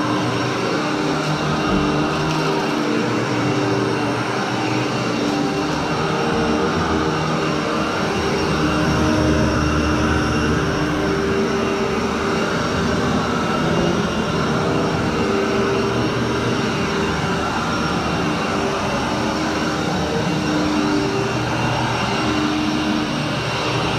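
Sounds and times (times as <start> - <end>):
vacuum cleaner on carpet: 0.0 - 23.9.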